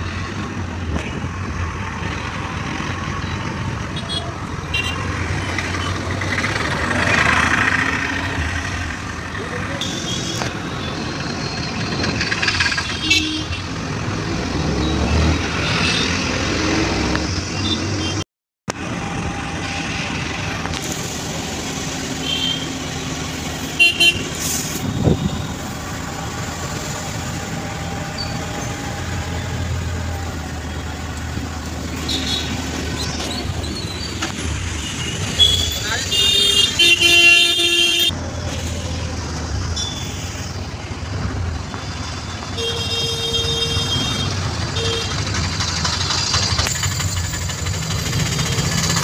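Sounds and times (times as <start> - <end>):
road traffic inside vehicle: 0.0 - 49.0
horns honking: 23.6 - 25.8, 34.7 - 38.2, 41.8 - 45.4.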